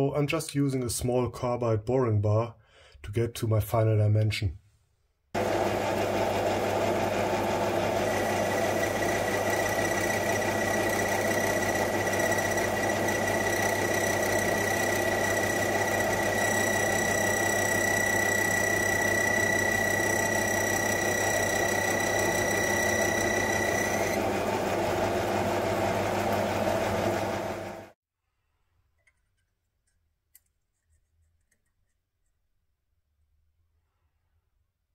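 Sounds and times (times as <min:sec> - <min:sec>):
high whine of metal cutting: 0:05.4 - 0:27.9
lathe hum: 0:05.4 - 0:28.0.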